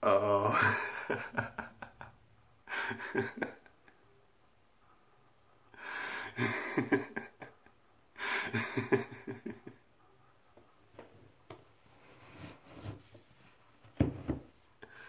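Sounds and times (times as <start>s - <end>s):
man laughing breathily: 0.2s - 4.2s, 5.8s - 9.8s.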